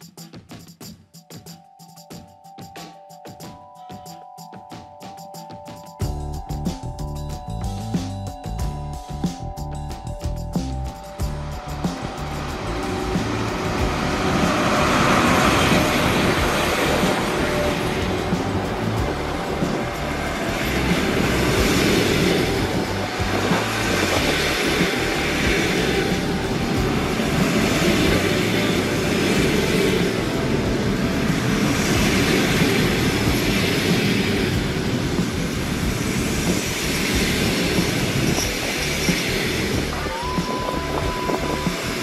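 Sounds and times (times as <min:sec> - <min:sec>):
train wheels clattering on rails: 0:11.2 - 0:42.0.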